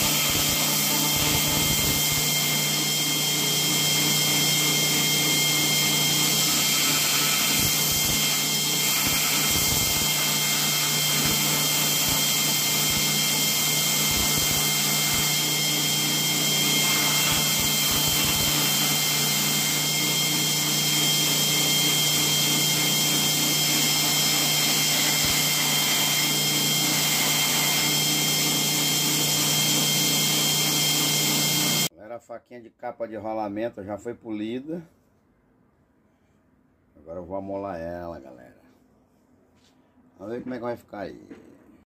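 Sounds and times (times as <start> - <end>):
belt grinder running: 0.0 - 31.9
wood sanding on belt: 0.0 - 31.9.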